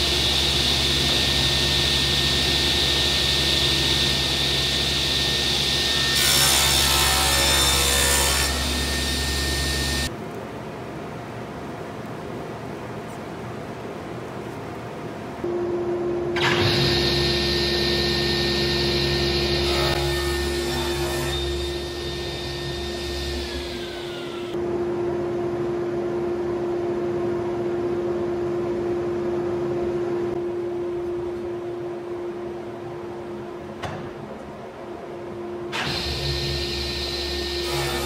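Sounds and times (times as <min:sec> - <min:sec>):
table saw whine: 0:00.0 - 0:10.1, 0:15.5 - 0:24.6, 0:35.7 - 0:38.0.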